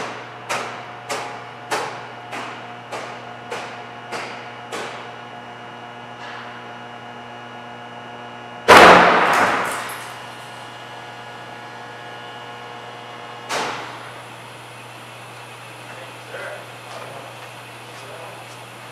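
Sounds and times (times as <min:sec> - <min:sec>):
loud bang with metallic ringing: 0:08.7 - 0:10.2.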